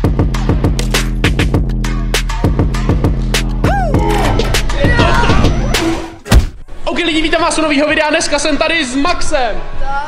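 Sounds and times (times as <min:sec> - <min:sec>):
held bass line: 0:00.0 - 0:06.5
drum beat: 0:00.0 - 0:06.6.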